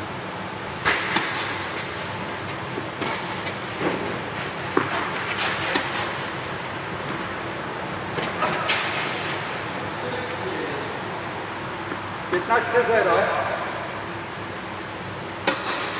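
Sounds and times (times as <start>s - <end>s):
steady background hum: 0.0s - 15.9s
tennis balls struck and bouncing: 0.8s - 6.4s, 15.4s - 15.9s.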